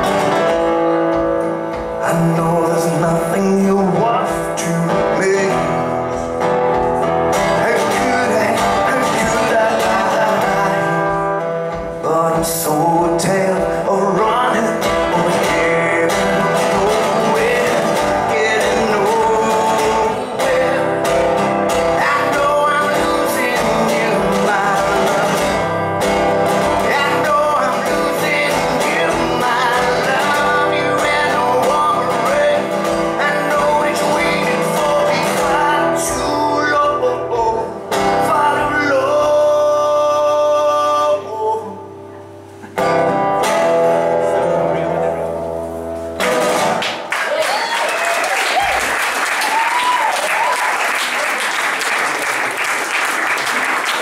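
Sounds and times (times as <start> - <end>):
acoustic guitar: 0.0 - 54.0
man singing: 1.5 - 45.6.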